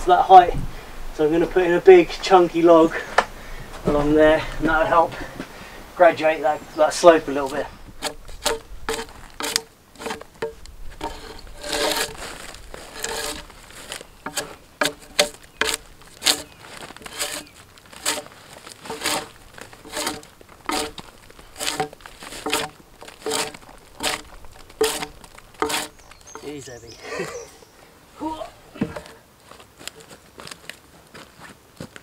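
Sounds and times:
scraping sounds: 7.0 - 26.8
hand tool knocking on timber: 19.9 - 21.0, 21.6 - 24.2, 24.8 - 26.5.

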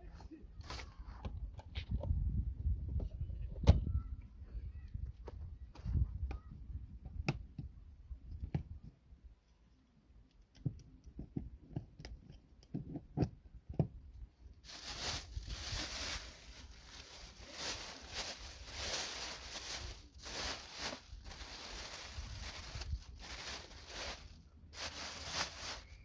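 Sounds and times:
plastic bag rustling: 14.6 - 26.0.

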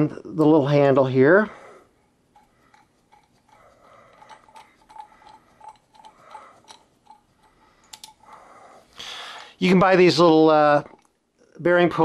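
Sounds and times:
faint metallic ticking: 1.4 - 8.9.

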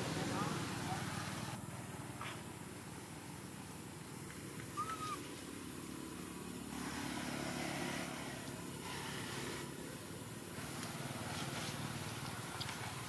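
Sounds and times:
motorcycle engine running: 0.0 - 4.6.

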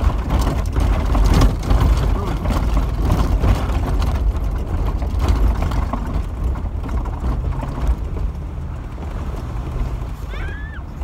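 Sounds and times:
vehicle engine and tyres rumbling: 0.0 - 11.0.

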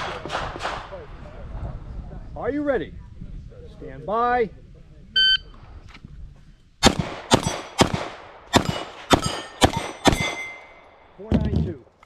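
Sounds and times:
rapid gunshots: 6.8 - 10.4.

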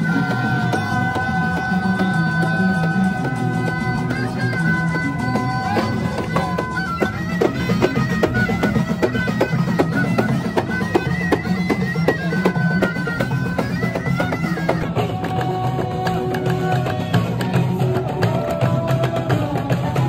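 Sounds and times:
high held melody: 0.0 - 16.9
frame drums beating: 0.0 - 20.0.

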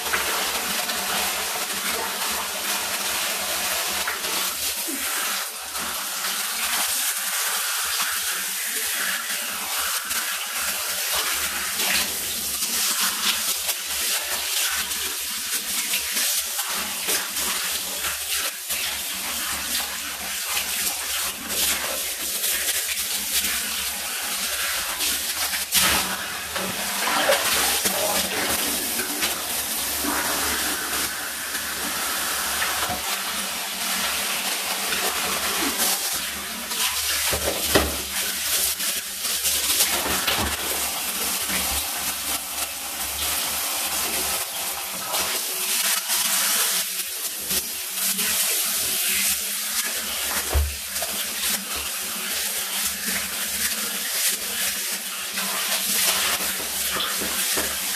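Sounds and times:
water spraying from shower head: 0.0 - 57.9
water splashing: 25.0 - 42.4.

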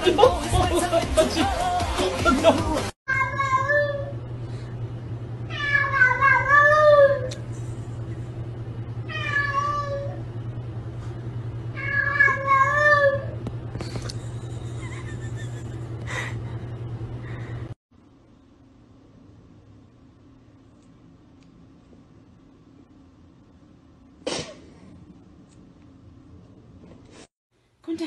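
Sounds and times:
steady low hum: 3.2 - 28.0
cat meowing: 5.5 - 7.3, 9.1 - 10.2, 11.8 - 13.4.

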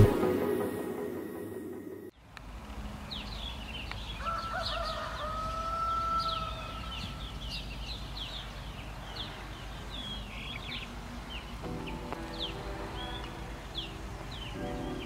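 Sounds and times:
songbirds chirping: 2.1 - 15.0
rooster crowing: 4.2 - 7.0.

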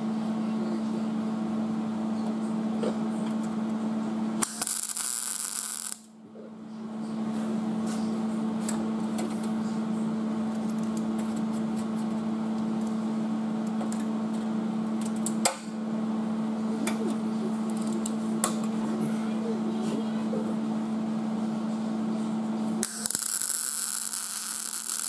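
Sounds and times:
steady low hum: 0.0 - 25.0
welder arc crackling: 4.4 - 6.1, 22.8 - 25.0.

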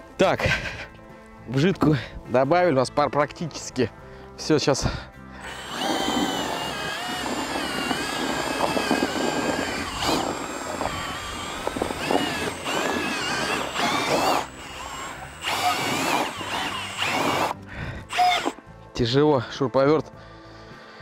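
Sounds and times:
drill motor whining under load: 5.4 - 18.6.

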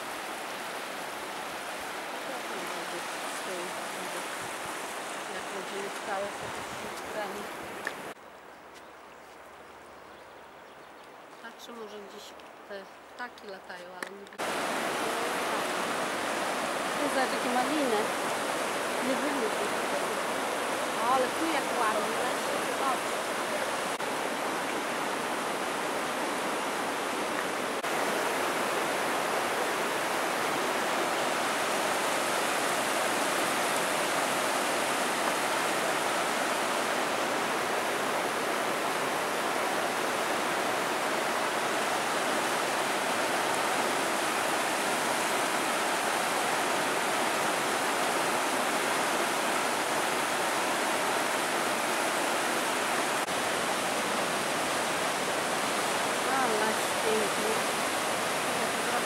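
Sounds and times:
river rushing through rapids: 0.0 - 8.2, 14.4 - 59.0.

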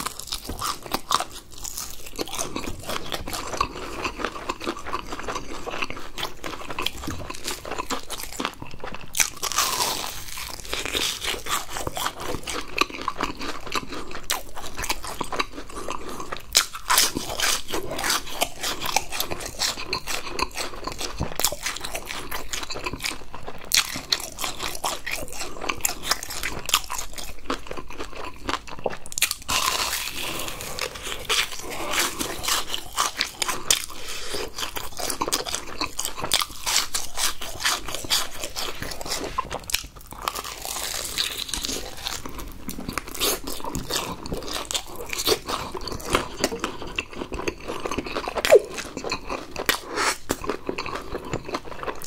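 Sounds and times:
crunching and chewing fried food: 0.0 - 52.0.

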